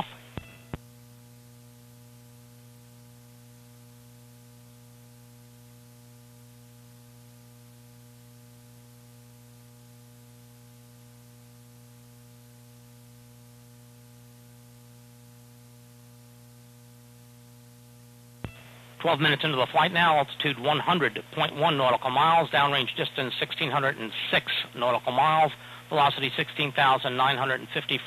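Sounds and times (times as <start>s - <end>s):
electrical hum: 0.0s - 28.0s
faint hiss: 18.4s - 21.4s.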